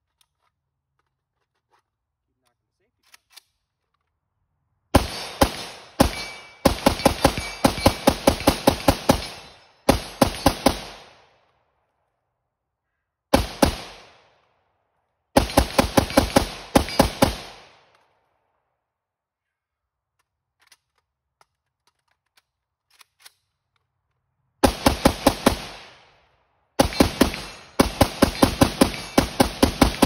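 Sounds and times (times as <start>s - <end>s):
rifle shots echoing: 4.9s - 11.4s, 13.3s - 14.4s, 15.4s - 17.9s, 24.6s - 30.0s.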